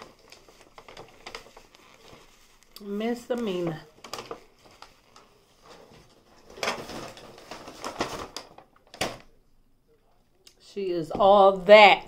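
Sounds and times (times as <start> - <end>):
paper rustling and crinkling: 0.0 - 9.4.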